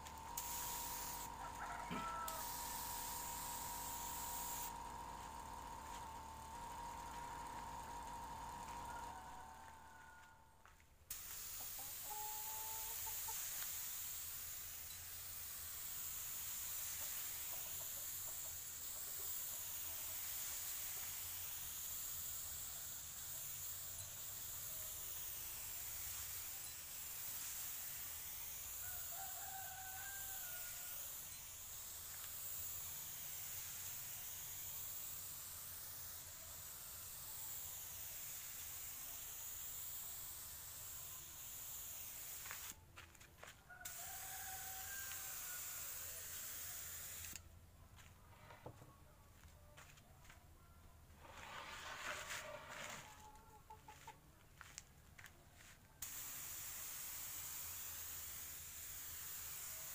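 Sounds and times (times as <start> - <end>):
spray gun hissing: 0.0 - 9.3, 11.1 - 42.8, 43.8 - 47.4, 56.0 - 59.9
chicken clucking: 1.4 - 2.4, 11.6 - 13.3, 52.3 - 54.3.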